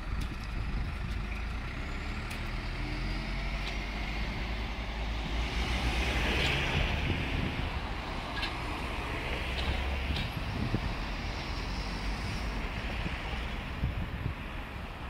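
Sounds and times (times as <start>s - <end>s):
road traffic passing: 0.0s - 15.0s.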